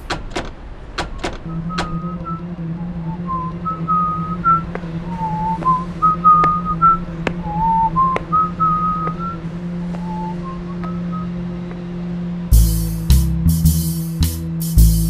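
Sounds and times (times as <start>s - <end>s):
sharp clicks: 0.0s - 2.0s
steady low drone: 0.7s - 15.0s
person whistling a slow tune: 1.5s - 9.4s, 10.0s - 11.4s.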